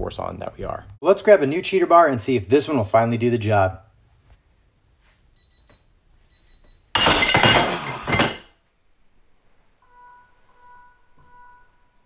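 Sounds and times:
metal clattering and ringing: 7.0 - 8.6.

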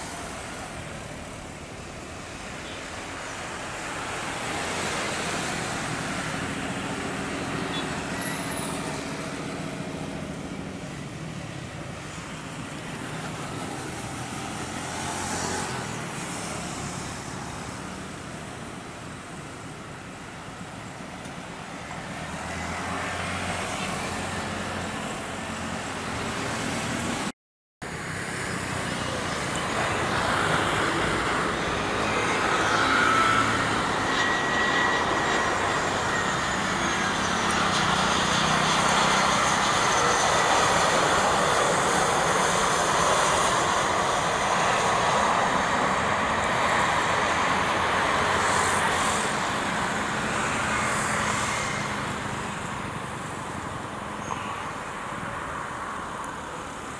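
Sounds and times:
jet airliner taking off: 0.0 - 19.7, 27.9 - 56.1
airliner on approach whining: 0.0 - 56.9.

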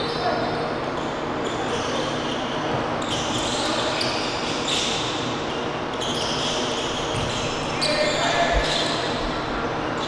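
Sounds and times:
sneakers squeaking on hardwood: 5.9 - 9.1.

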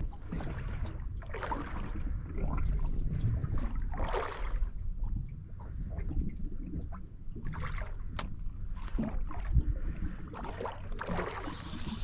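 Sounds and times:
low steady rumble: 0.0 - 12.0
water lapping against boat hull: 0.0 - 12.0.

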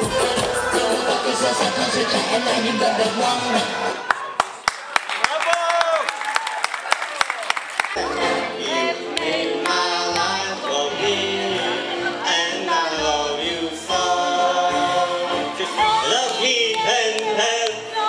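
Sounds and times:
man singing into a microphone: 0.0 - 3.9, 9.6 - 18.0
backing music with bass line: 0.0 - 4.0, 8.0 - 18.0.

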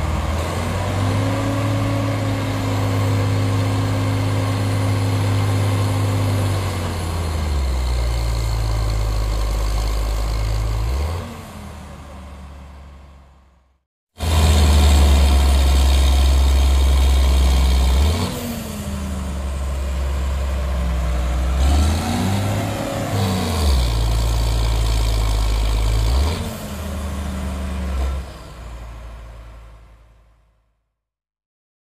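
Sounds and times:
tractor diesel engine straining: 0.0 - 13.2, 14.2 - 29.7.

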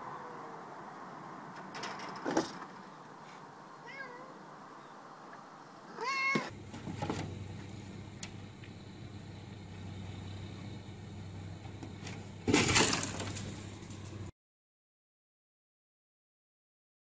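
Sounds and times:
cat meowing: 0.0 - 0.7, 3.7 - 4.5, 5.9 - 6.5.

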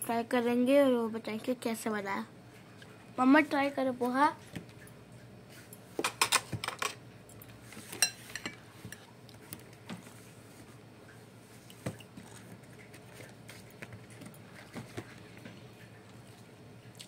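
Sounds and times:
spoon scraping and clinking bowl: 8.0 - 8.6.

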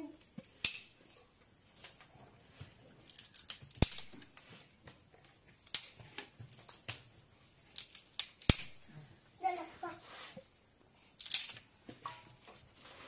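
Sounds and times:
sticks snapping and cracking: 3.0 - 4.4, 5.6 - 6.3, 7.7 - 8.8.

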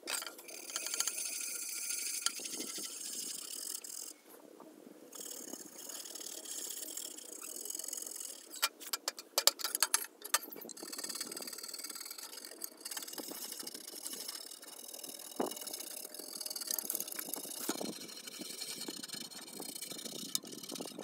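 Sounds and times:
toothbrush scrubbing metal: 9.6 - 21.0.

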